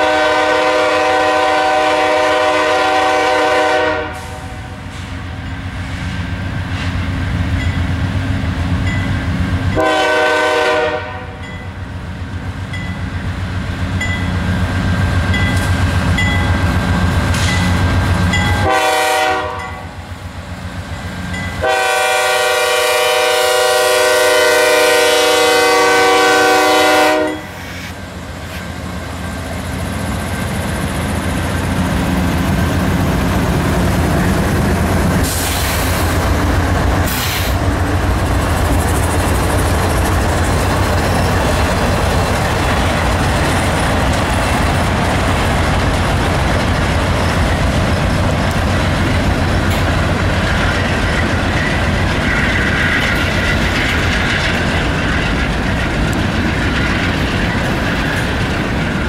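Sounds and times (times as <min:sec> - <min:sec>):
locomotive air horn blasts: 0:00.0 - 0:05.0, 0:09.8 - 0:11.4, 0:18.5 - 0:20.0, 0:21.6 - 0:27.9.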